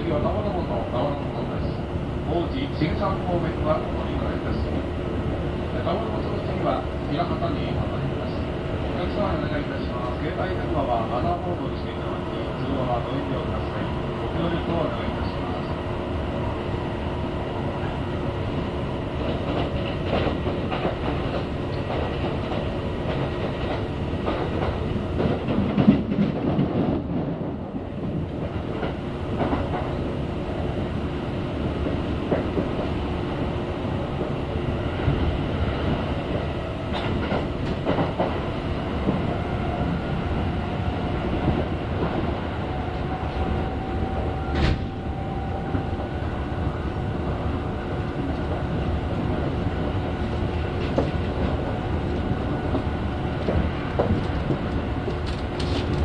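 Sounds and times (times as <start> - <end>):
train wheels rumbling on rails: 0.0 - 56.0
clicks over rail joints: 53.4 - 56.0.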